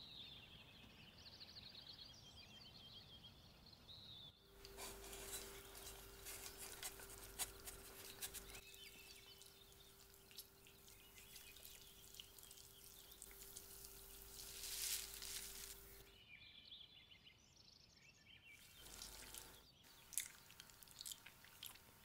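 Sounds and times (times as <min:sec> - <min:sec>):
charred skin crackling: 0:04.5 - 0:16.1, 0:18.6 - 0:22.0.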